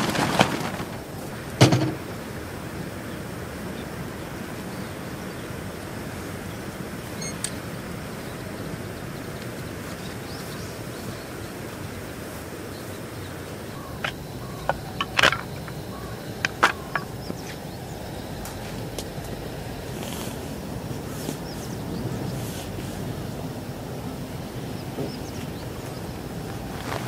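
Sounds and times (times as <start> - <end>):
camp gear knocks and clicks: 0.0 - 2.0, 13.8 - 17.6
outdoor background noise: 0.0 - 27.0.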